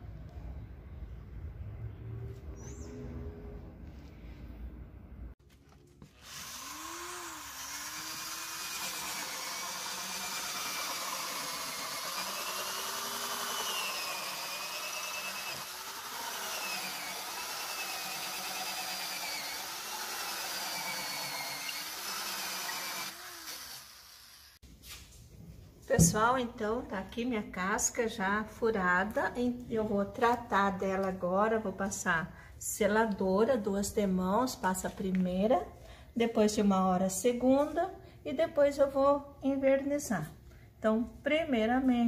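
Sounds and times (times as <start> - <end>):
electric drill with hole saw cutting: 6.2 - 24.6.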